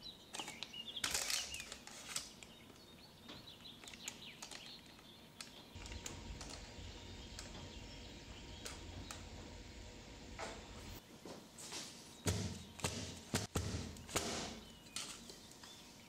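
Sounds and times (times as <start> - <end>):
low steady hum: 5.7 - 11.4.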